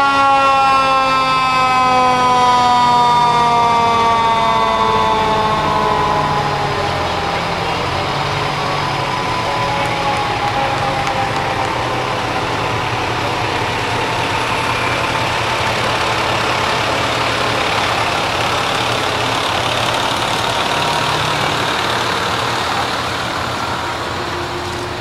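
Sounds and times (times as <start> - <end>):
fire engine driving past: 0.0 - 25.0.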